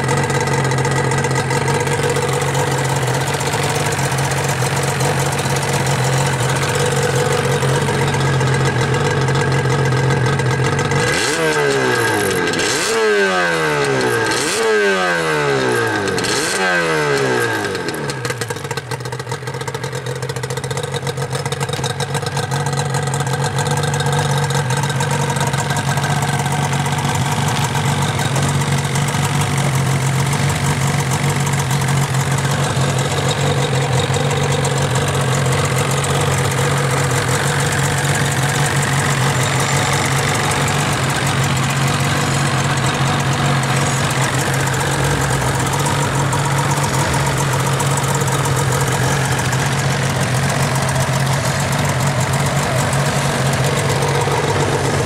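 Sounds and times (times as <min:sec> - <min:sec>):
motorcycle engine idling and revving: 0:00.0 - 0:55.0.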